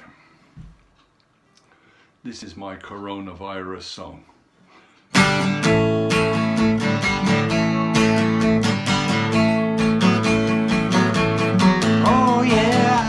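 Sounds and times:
acoustic guitar strumming chords: 5.1s - 13.0s.

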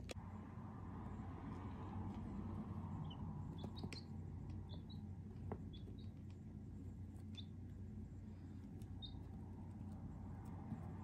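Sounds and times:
chicks peeping: 3.0s - 6.4s, 7.1s - 7.7s, 8.7s - 9.8s.

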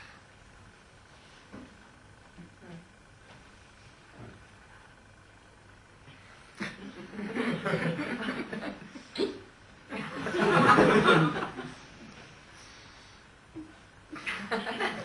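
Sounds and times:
audience laughing: 6.6s - 8.9s, 9.9s - 11.8s, 14.2s - 15.0s.

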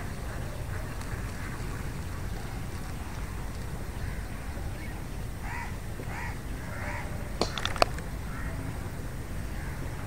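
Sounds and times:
crow cawing: 5.5s - 7.0s.

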